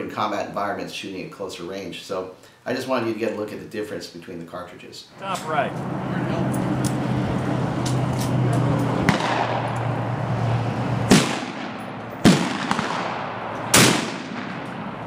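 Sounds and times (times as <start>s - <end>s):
gunshots: 9.0s - 10.1s, 11.1s - 15.0s.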